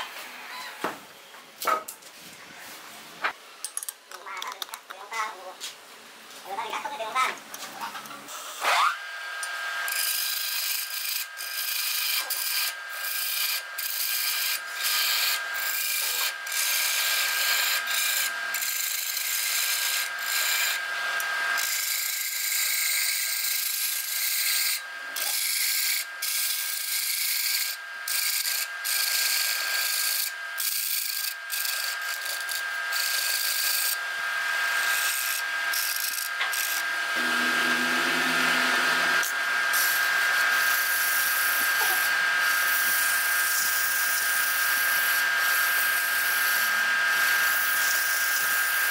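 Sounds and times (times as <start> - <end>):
wood lathe whining: 8.4 - 48.9
chisel cutting spinning wood: 8.6 - 48.9.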